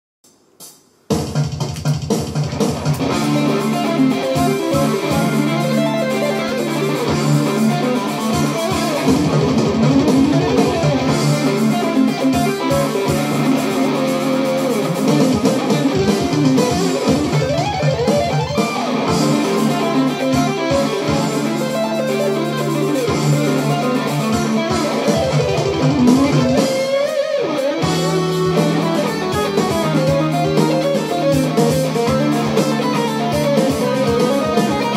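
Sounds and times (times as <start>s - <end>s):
electric guitar lead runs: 2.5s - 34.9s
sustained low guitar notes: 3.0s - 34.9s.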